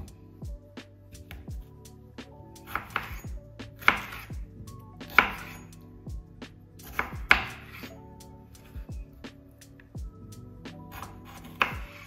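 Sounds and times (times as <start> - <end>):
soft background music: 0.0 - 12.0
knife chopping on cutting board: 3.8 - 4.3, 5.1 - 5.6.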